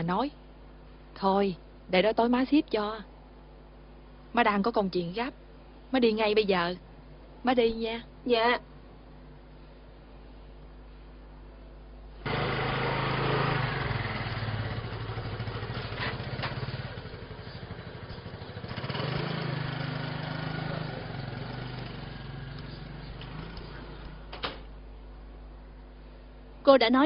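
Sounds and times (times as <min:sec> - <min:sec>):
motor scooter engine running: 0:12.2 - 0:24.3.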